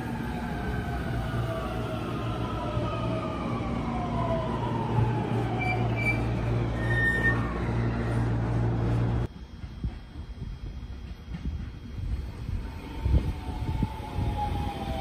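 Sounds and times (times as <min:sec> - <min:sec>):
short high squeal: 0:05.7 - 0:07.7.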